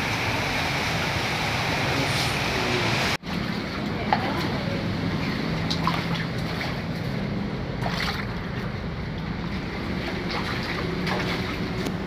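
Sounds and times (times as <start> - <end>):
steady rushing noise: 0.0 - 3.2
floodwater sloshing indoors: 3.2 - 12.0
water splash: 5.2 - 7.2, 7.8 - 8.7, 9.7 - 12.0.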